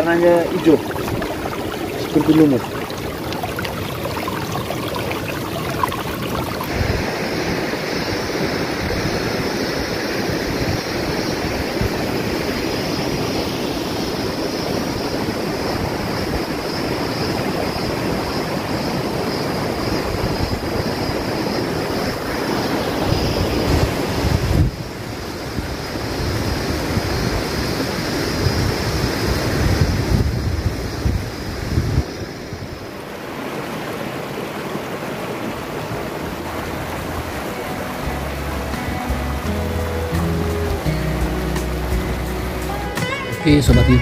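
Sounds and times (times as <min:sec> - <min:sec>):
steaming fumaroles rushing: 0:00.0 - 0:39.6
wind buffeting microphone: 0:23.1 - 0:32.9.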